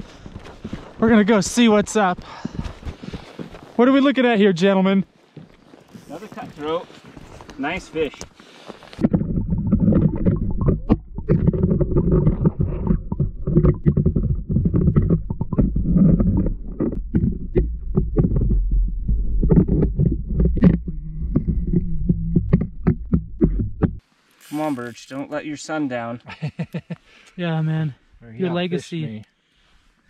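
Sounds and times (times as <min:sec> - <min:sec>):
muffled underwater rumble: 0:09.0 - 0:24.0
underwater knocks and clicks: 0:09.0 - 0:24.0.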